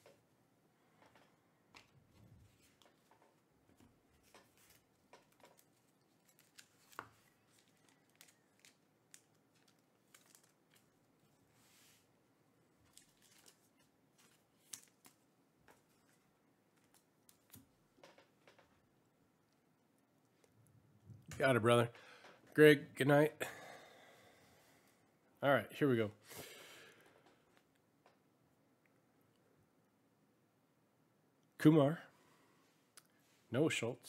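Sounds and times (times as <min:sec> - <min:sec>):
soft card clicks and rustles: 0:01.0 - 0:12.1, 0:12.8 - 0:18.7.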